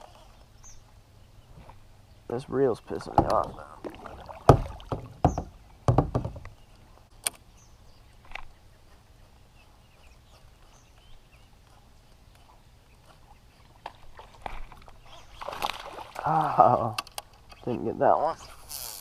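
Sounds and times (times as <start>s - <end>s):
faint distant bird chirps: 0.0s - 14.2s, 14.9s - 15.9s
fishing rod knocking on kayak: 3.1s - 3.6s, 4.5s - 6.4s.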